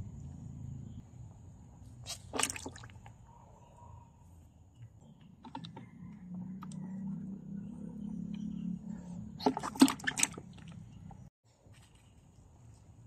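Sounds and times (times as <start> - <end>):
small water splashes: 2.1 - 3.1, 9.4 - 11.1
frogs scrambling in plastic tub: 2.1 - 3.2, 5.4 - 6.8, 9.3 - 11.2.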